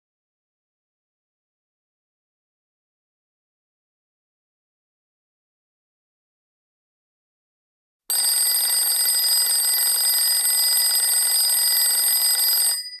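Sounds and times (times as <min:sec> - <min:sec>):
timer alarm ringing: 0:08.1 - 0:13.0.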